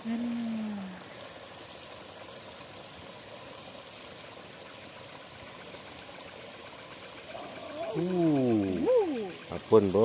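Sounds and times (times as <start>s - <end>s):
stream trickling over rocks: 0.0s - 10.0s.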